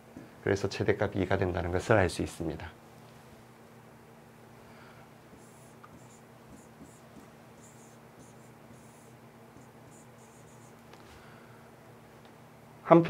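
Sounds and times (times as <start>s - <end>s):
steady low hum: 0.0s - 13.0s
stylus scratching on tablet: 5.3s - 10.9s.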